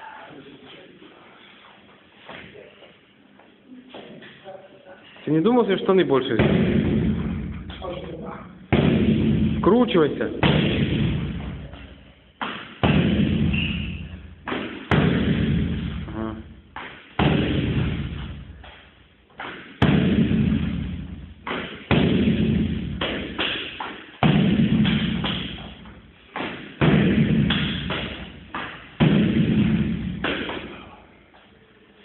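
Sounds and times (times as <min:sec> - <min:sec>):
heavy kicks thudding into shield: 0:08.7 - 0:09.6, 0:10.4 - 0:11.5, 0:12.8 - 0:13.5, 0:17.2 - 0:18.2, 0:19.8 - 0:21.0, 0:24.2 - 0:25.5, 0:26.8 - 0:28.2.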